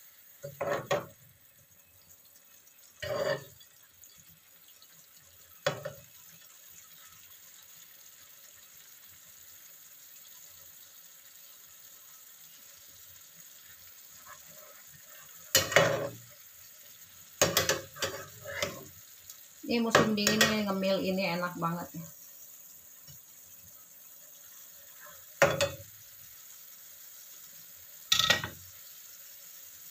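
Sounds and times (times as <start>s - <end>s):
stew simmering with faint sizzle: 0.0s - 29.9s
metal spatula scraping pan: 0.4s - 1.1s, 3.0s - 3.7s, 14.2s - 16.3s, 17.4s - 18.9s
spatula clattering: 0.4s - 1.2s, 3.0s - 3.7s, 14.6s - 16.3s, 17.4s - 18.9s, 19.9s - 20.7s, 25.0s - 25.9s, 28.1s - 28.6s.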